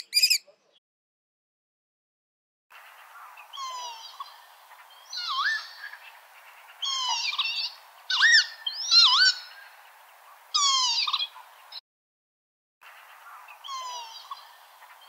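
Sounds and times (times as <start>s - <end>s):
lapwing calling: 0.0s - 0.6s, 3.0s - 11.8s, 13.3s - 15.0s.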